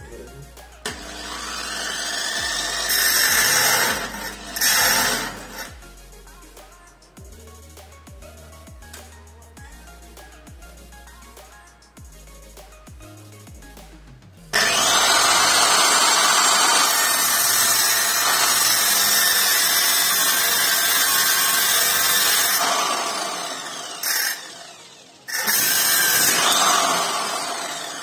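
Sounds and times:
angle grinder cutting steel: 0.8s - 5.8s, 14.5s - 28.0s.

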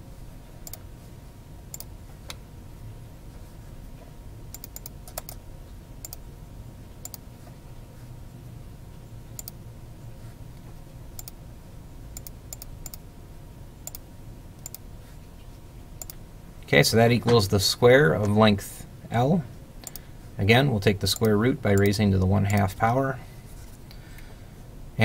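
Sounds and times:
low steady hum: 0.0s - 25.0s
computer mouse clicking: 0.6s - 0.8s, 1.7s - 2.4s, 4.5s - 5.4s, 6.0s - 6.2s, 7.0s - 7.2s, 9.4s - 9.6s, 11.2s - 11.4s, 12.2s - 13.0s, 13.8s - 14.0s, 14.6s - 14.8s, 16.0s - 16.2s.

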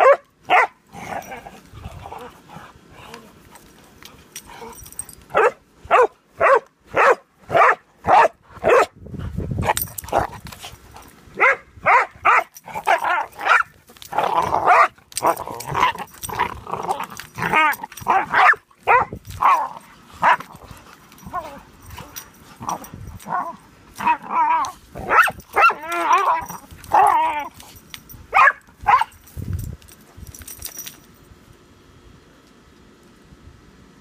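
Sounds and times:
dogs barking: 0.0s - 1.3s, 5.3s - 9.0s, 11.4s - 13.7s, 14.4s - 16.3s, 17.4s - 20.5s, 22.6s - 27.2s, 28.3s - 29.2s.

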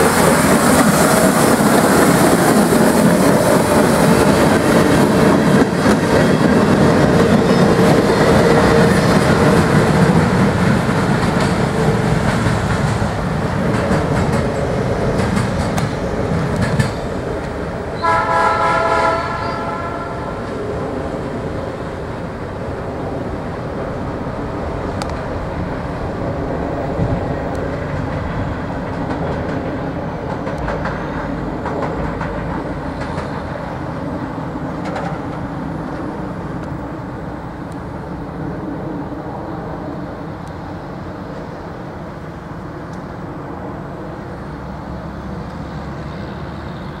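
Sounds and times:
sharp rail clicks: 0.0s - 17.7s, 24.9s - 25.4s, 27.0s - 33.9s, 34.7s - 36.8s
wheels rumbling on rail: 0.0s - 47.0s.

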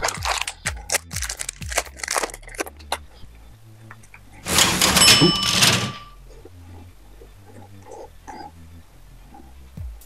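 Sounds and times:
cards flicking and snapping: 0.0s - 3.0s
cards rustling: 0.0s - 3.0s.

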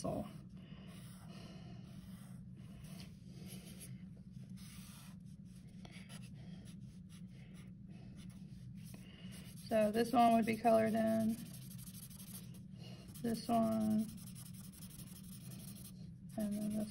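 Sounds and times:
steady low hum: 0.0s - 16.9s
marker drawing on paper: 4.6s - 7.2s, 8.2s - 16.9s.

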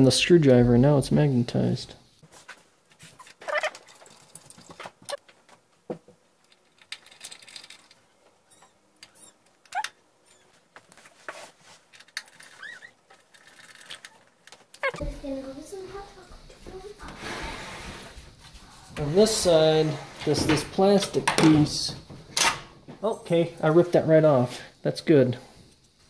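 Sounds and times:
short squeaks: 3.2s - 3.9s, 8.4s - 10.6s, 12.3s - 13.1s, 14.8s - 15.0s.

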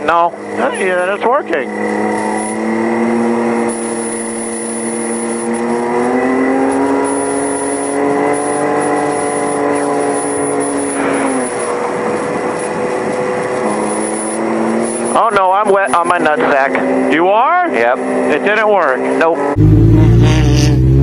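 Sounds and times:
race car engine running: 0.0s - 21.0s.

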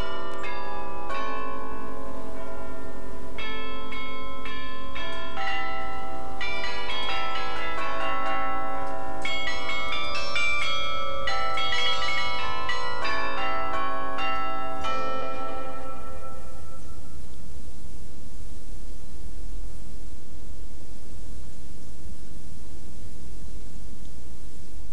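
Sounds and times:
carillon bells playing a tune: 0.0s - 16.8s.

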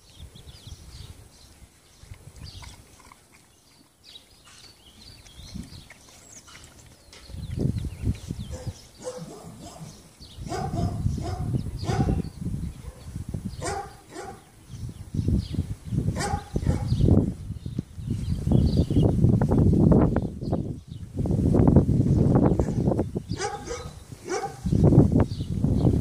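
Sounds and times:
dogs barking: 8.5s - 12.2s, 12.8s - 14.5s, 16.1s - 17.0s, 22.6s - 24.7s.

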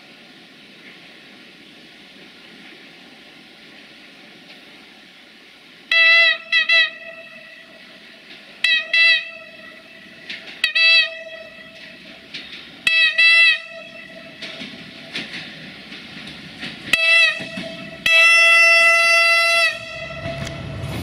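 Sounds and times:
train running rumble: 0.0s - 21.0s
train horn short blasts: 5.9s - 8.0s, 8.6s - 12.2s, 12.8s - 14.7s, 16.9s - 20.9s.

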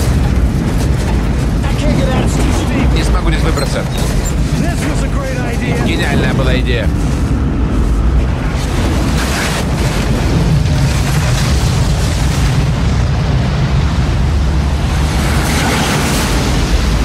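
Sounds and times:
deep rumble: 0.0s - 17.0s
tornado wind and debris: 0.0s - 17.0s.

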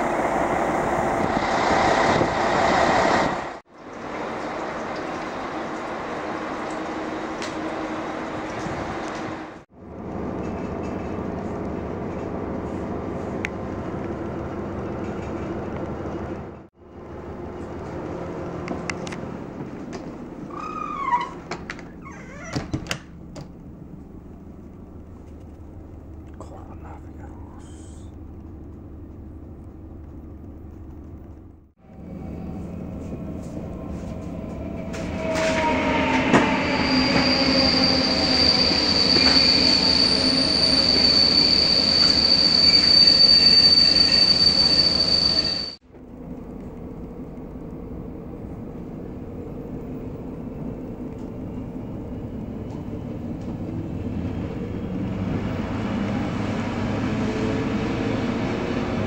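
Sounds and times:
train rumbling: 0.0s - 59.0s
high-pitched wheel squeal: 20.5s - 21.4s, 34.9s - 45.8s.

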